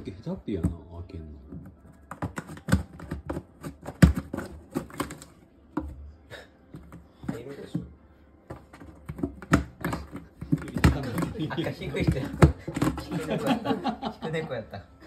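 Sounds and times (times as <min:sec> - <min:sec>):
tapping and knocking on cardboard: 0:00.5 - 0:06.0, 0:08.5 - 0:13.7.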